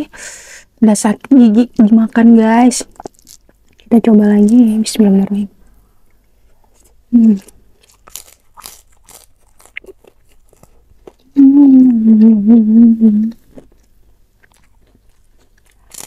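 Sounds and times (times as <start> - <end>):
cracker crunching: 2.8 - 4.6, 6.2 - 11.4, 13.4 - 16.0
soft chewing: 2.8 - 4.8, 5.9 - 16.0
person humming mmm: 11.3 - 13.6.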